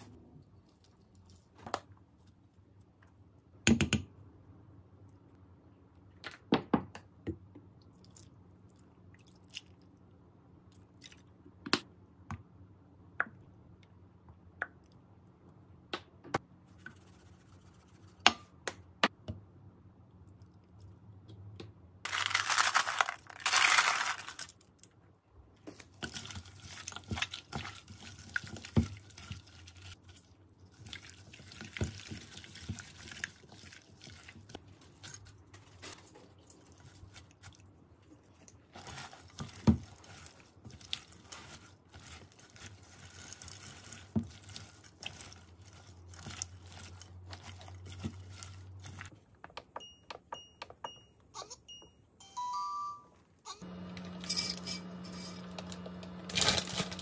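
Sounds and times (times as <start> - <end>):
crunching and chewing: 28.1 - 49.1.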